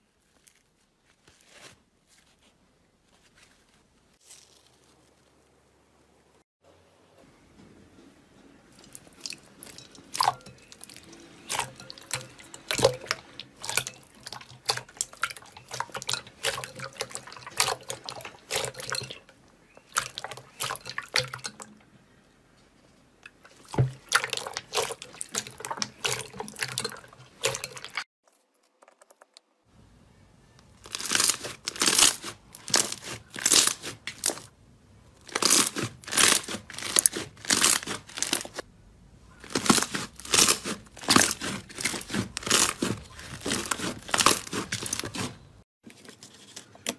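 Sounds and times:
slime squelching and popping: 0:08.8 - 0:19.1, 0:23.5 - 0:28.0, 0:30.8 - 0:34.5, 0:35.2 - 0:38.6, 0:39.4 - 0:45.4
slime crackling and tearing: 0:30.8 - 0:34.5, 0:35.2 - 0:38.6, 0:39.4 - 0:45.4.

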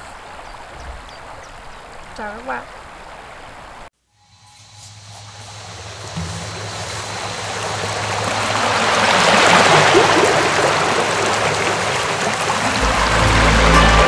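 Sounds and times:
rushing noise: 0:04.2 - 0:14.0.

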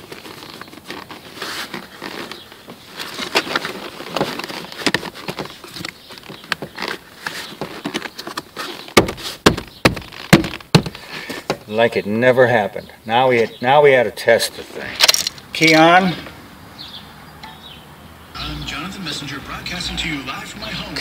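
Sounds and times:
plastic panel scraping and rustling: 0:00.0 - 0:11.6.

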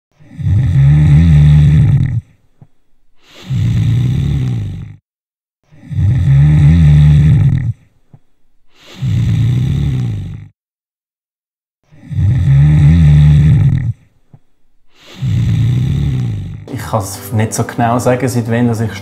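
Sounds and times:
person snoring loudly: 0:00.1 - 0:02.4, 0:03.2 - 0:05.1, 0:05.7 - 0:07.9, 0:08.7 - 0:10.6, 0:11.8 - 0:14.1, 0:14.9 - 0:17.0.

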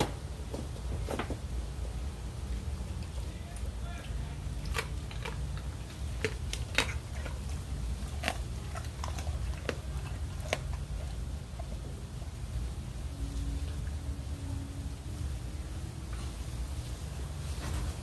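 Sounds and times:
dog chewing bones: 0:02.0 - 0:13.1.

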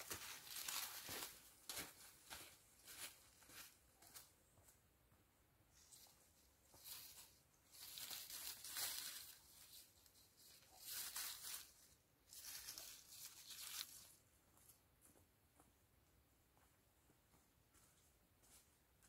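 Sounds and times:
rustling in tree branches: 0:00.0 - 0:04.2, 0:05.8 - 0:14.2.

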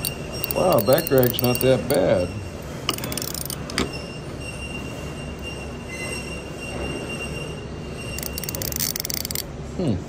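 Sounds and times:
ratchet clicking: 0:00.0 - 0:02.0, 0:02.9 - 0:03.8, 0:08.2 - 0:09.5.

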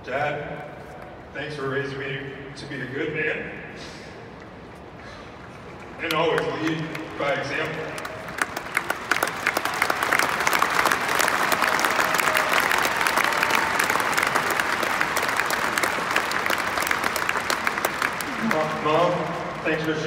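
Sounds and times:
stadium crowd applauding: 0:06.0 - 0:20.0.

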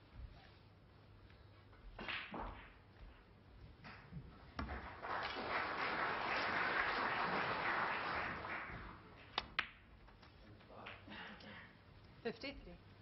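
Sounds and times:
billiard balls colliding: 0:02.0 - 0:02.9
audience applauding: 0:04.6 - 0:09.4.

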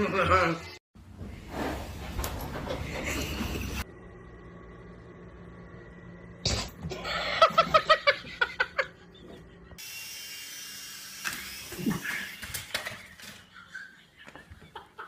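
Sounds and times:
toy motor whirring: 0:09.8 - 0:13.5.

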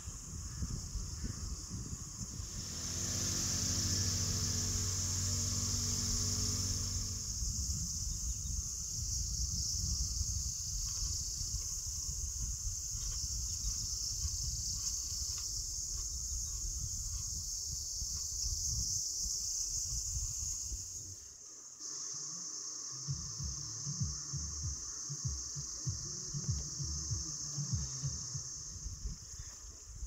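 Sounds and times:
insects singing: 0:00.0 - 0:30.0
low uneven rumble: 0:01.1 - 0:09.7.

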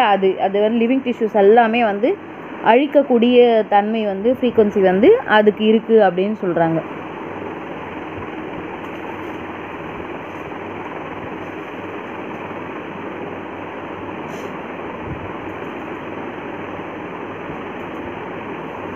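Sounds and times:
steady rushing noise: 0:00.0 - 0:18.9.

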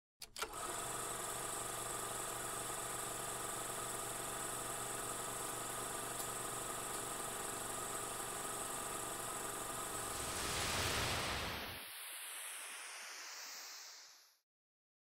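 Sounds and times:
constant hiss: 0:10.0 - 0:14.0.

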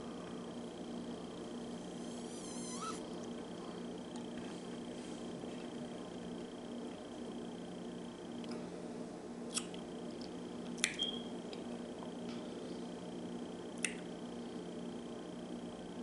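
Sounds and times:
faint high whine: 0:00.0 - 0:08.1
low room hum: 0:00.0 - 0:16.0.

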